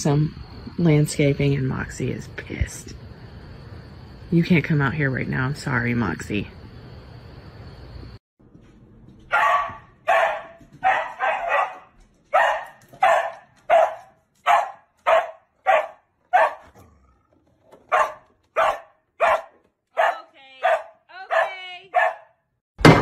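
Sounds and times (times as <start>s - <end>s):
dog barking: 9.3s - 17.1s, 17.8s - 22.4s.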